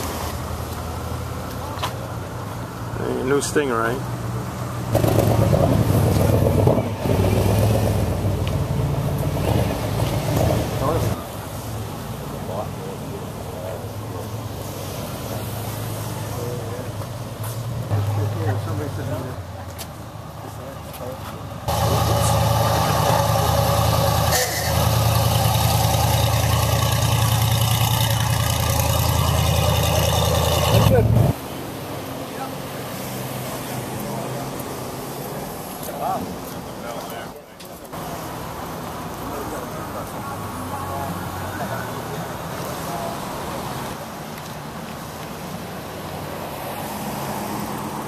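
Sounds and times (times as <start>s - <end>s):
vehicle engine driving past: 21.7s - 31.4s.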